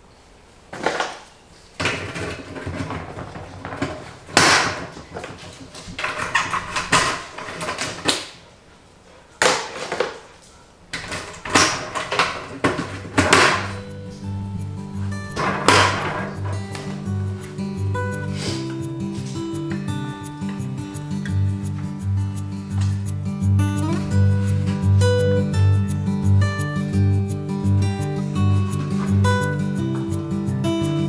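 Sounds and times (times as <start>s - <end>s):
plastic rustling and scraping: 0.7s - 19.9s
music: 11.1s - 31.0s.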